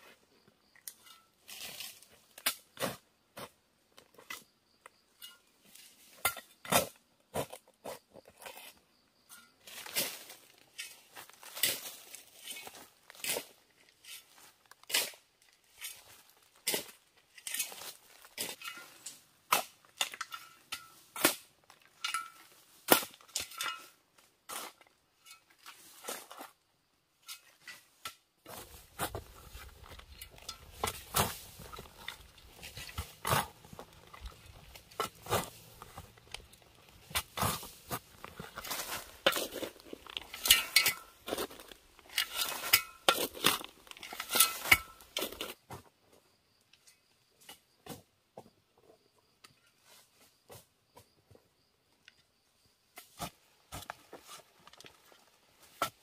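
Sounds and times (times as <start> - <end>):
hoe chopping into dry soil: 20.8 - 21.5, 22.8 - 23.6, 28.4 - 45.8, 53.0 - 54.4.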